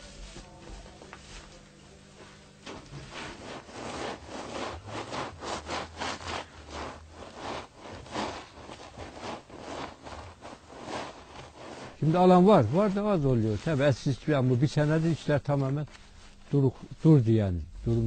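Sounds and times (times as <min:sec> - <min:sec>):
tool scraping sheepskin: 0:02.6 - 0:17.0.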